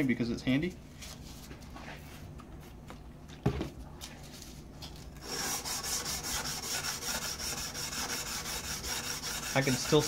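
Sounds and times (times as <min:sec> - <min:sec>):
sandpaper scraping steel blade: 0:05.2 - 0:10.0.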